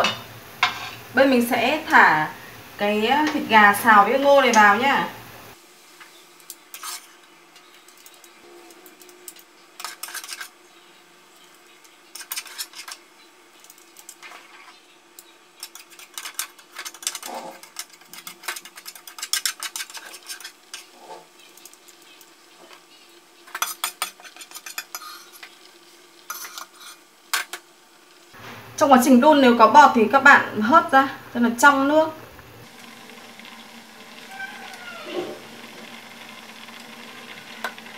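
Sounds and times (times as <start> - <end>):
utensils scraping and clinking on pans: 0.0 - 1.1, 6.0 - 10.6, 11.3 - 14.8, 15.6 - 27.7, 34.2 - 35.9.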